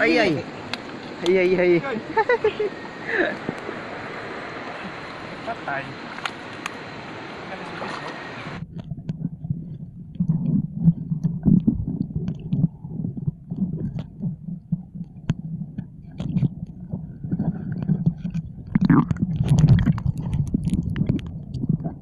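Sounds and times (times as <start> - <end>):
underwater churning rumble: 8.3 - 22.0.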